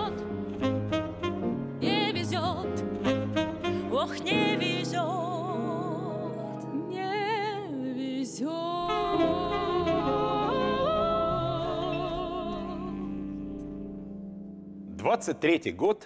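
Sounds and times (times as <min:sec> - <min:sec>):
saxophone: 0:00.0 - 0:05.6, 0:08.6 - 0:14.4
women singing in harmony: 0:01.8 - 0:02.9, 0:03.8 - 0:13.4.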